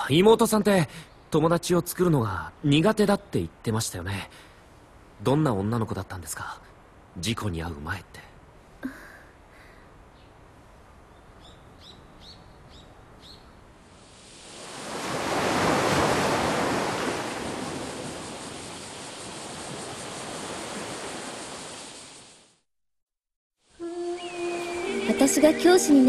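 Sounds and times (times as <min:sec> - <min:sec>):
ocean wave rushing in: 0:13.9 - 0:22.6.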